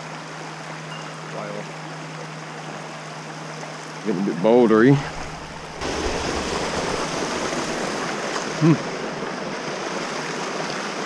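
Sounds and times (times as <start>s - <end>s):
creek water rushing over boulders: 0.0s - 11.0s
person vocal sound: 8.6s - 9.0s.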